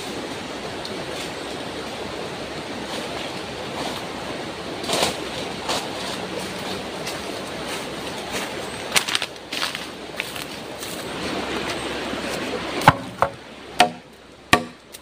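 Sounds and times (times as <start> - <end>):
steady rushing noise: 0.0 - 15.0
leaves and stems rustling and snapping: 4.8 - 12.9.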